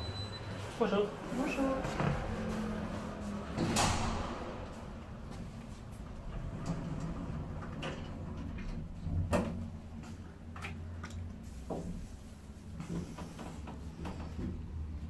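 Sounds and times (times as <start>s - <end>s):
elevator hum: 0.0s - 10.4s.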